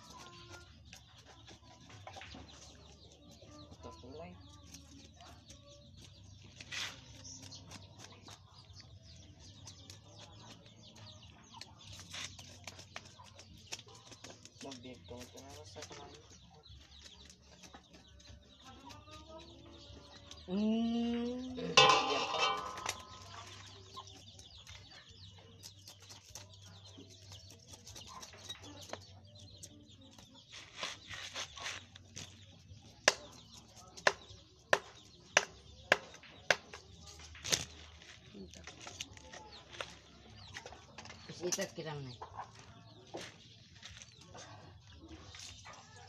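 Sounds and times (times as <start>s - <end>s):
chicken clucking: 0.0s - 37.1s, 38.2s - 46.0s
knife scraping fish scales: 30.5s - 32.0s.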